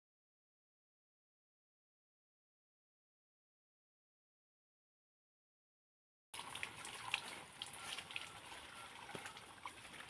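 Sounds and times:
water splashing and trickling: 0:06.4 - 0:10.0.

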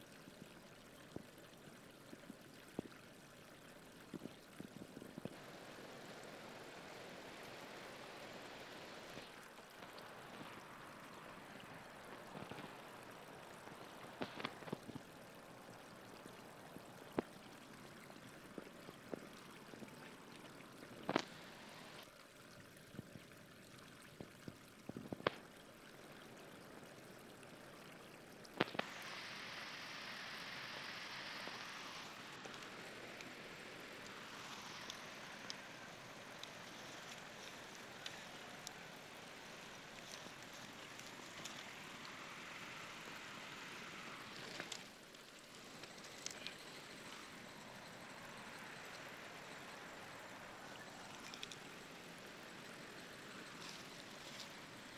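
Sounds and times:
river water rushing: 0:05.3 - 0:22.1, 0:28.3 - 0:54.9
bright hiss: 0:28.6 - 0:54.9.

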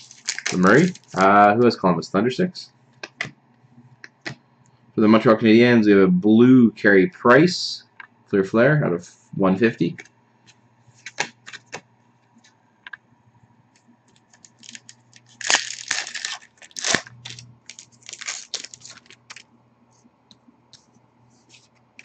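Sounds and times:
cards clicking and rustling: 0:11.0 - 0:11.8, 0:14.1 - 0:19.5.

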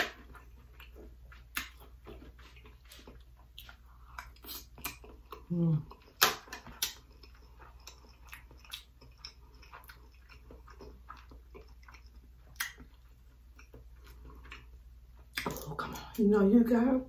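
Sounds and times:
chewing rice: 0:00.1 - 0:15.8
lip smacks: 0:00.8 - 0:05.4, 0:06.0 - 0:14.7
wet mouth clicks: 0:11.6 - 0:12.9.

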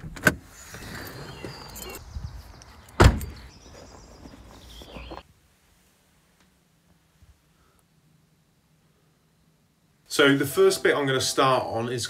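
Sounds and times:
rustling: 0:02.6 - 0:07.4
loud thud: 0:03.0 - 0:03.4.

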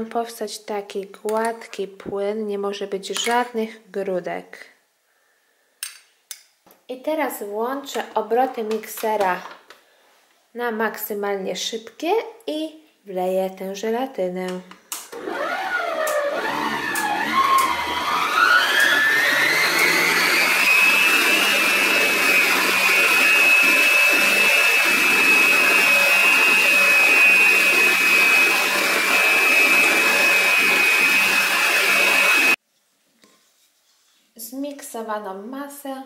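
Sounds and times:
stand mixer whisking in steel bowl: 0:15.5 - 0:32.5.

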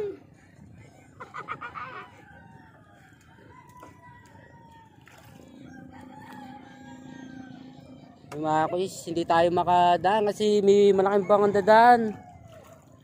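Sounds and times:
faint rooster crowing: 0:02.0 - 0:08.3, 0:11.0 - 0:13.0.

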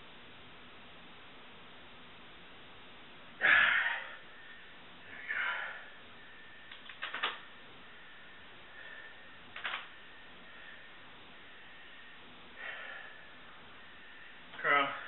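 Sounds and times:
man breathing out forcefully: 0:03.4 - 0:06.6, 0:12.6 - 0:13.4.

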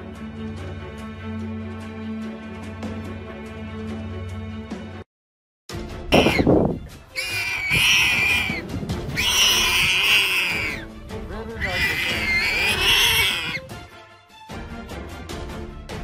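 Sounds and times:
animal screaming: 0:06.1 - 0:06.5, 0:07.1 - 0:10.9, 0:11.6 - 0:13.7.

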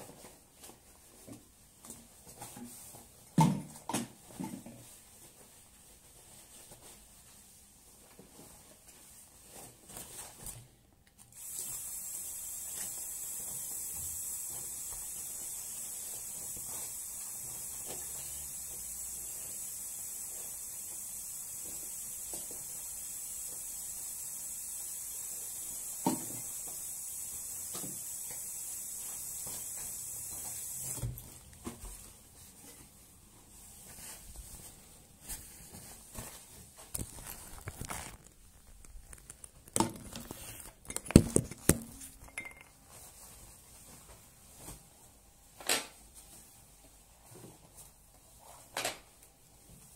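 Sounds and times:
shower spray hissing: 0:11.3 - 0:31.2.

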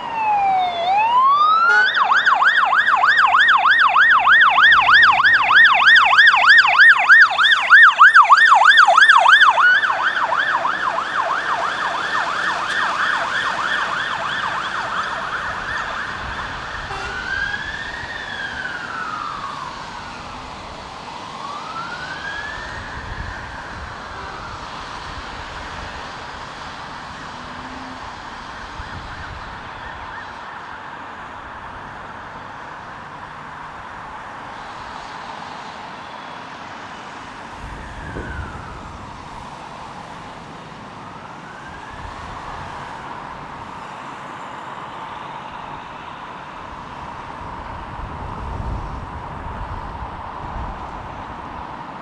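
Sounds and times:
fire engine siren: 0:00.0 - 0:52.0
road traffic noise: 0:00.0 - 0:52.0.

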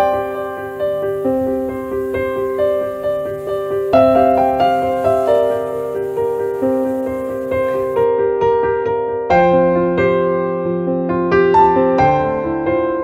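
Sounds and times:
piano music: 0:00.0 - 0:08.1.

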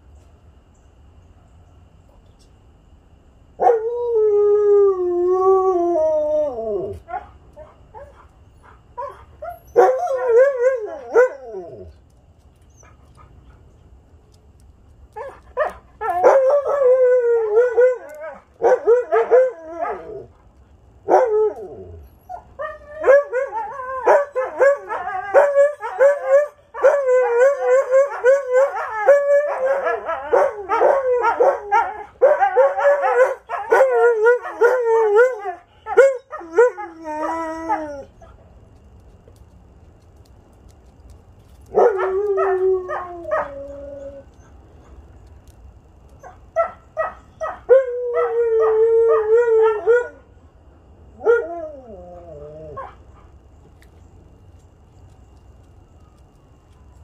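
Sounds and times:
huskies howling: 0:15.1 - 0:20.3, 0:21.1 - 0:38.2, 0:41.7 - 0:44.6.

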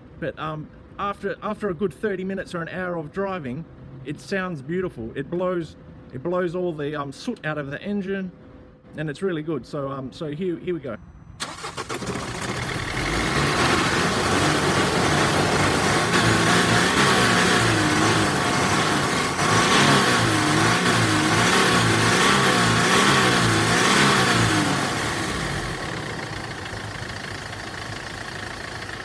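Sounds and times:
diesel engine starting and running: 0:11.0 - 0:29.0.

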